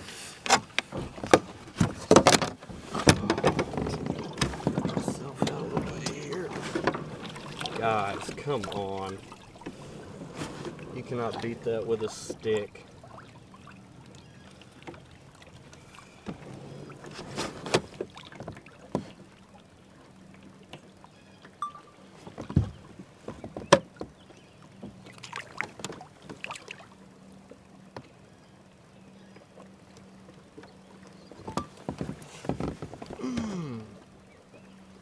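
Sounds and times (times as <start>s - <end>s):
knocks and rustles in a kayak: 0.0s - 26.8s, 27.4s - 28.3s, 29.3s - 35.0s
fish splashing into water: 25.1s - 27.0s.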